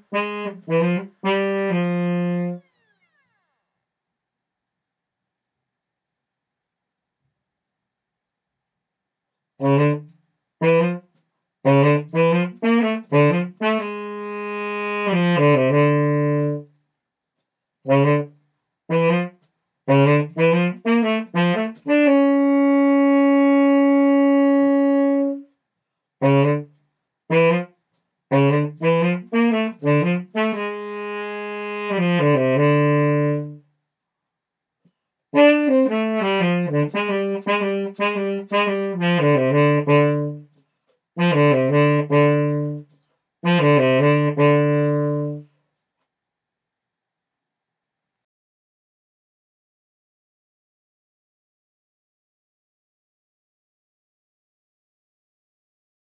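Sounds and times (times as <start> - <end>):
solo saxophone: 0.0 - 3.6, 9.6 - 16.8, 17.8 - 25.6, 26.2 - 33.7, 35.3 - 45.6.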